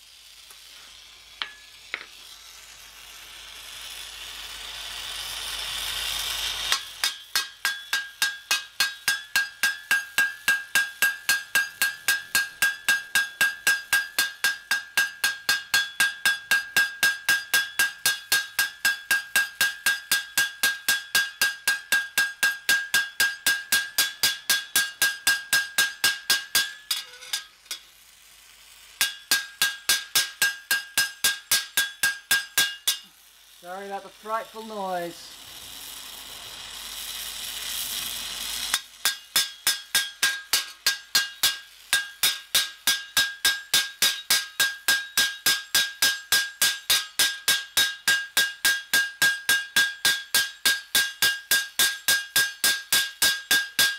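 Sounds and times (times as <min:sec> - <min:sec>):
hammer ringing on hot steel rivet: 0:01.4 - 0:02.1, 0:06.7 - 0:27.9, 0:29.0 - 0:33.3, 0:38.7 - 0:53.9
rising hiss: 0:33.1 - 0:38.8.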